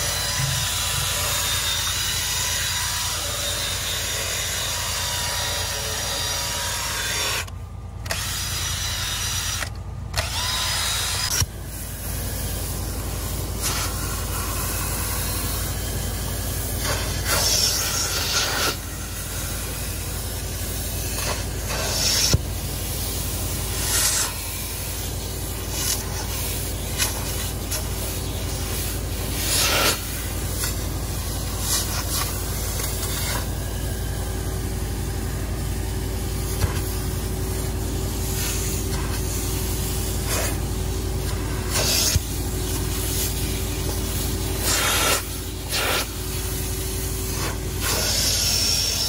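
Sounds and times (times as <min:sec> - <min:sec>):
carpet extractor running: 0:00.0 - 0:49.0
spray hissing: 0:11.2 - 0:33.7, 0:35.8 - 0:49.0.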